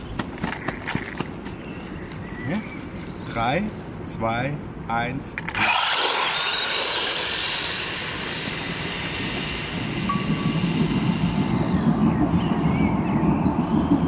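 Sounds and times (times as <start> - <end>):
rc car motors whining: 5.4 - 12.0
low rumbling noise: 5.7 - 14.0.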